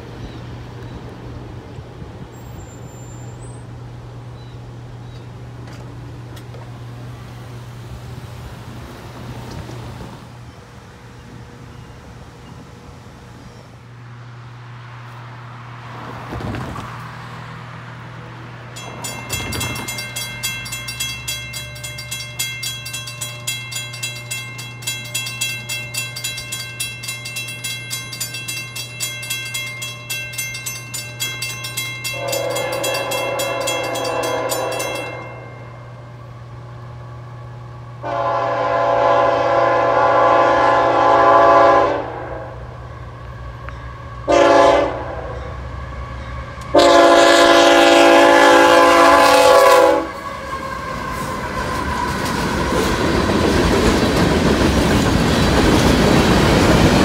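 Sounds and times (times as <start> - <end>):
railroad crossing bell ringing: 18.7 - 36.8, 43.5 - 50.6
locomotive air horn: 32.1 - 35.0, 38.0 - 42.7, 44.2 - 45.6, 46.7 - 52.2.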